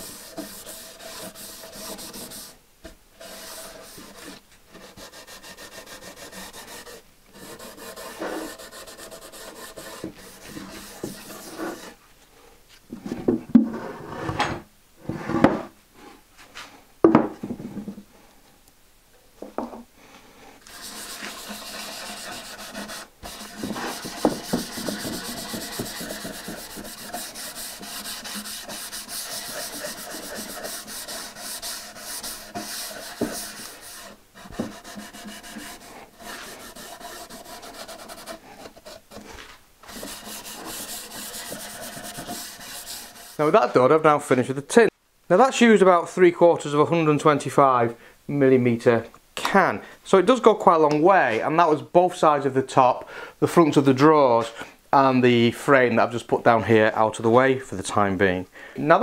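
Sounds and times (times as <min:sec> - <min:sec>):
sponge rubbing on wood: 0:00.0 - 0:02.6, 0:03.2 - 0:12.0, 0:20.7 - 0:43.5.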